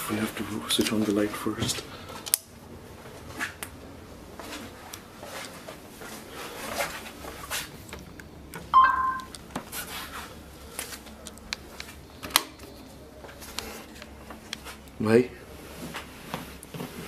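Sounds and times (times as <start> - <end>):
short two-tone electronic beep: 8.8 - 9.3.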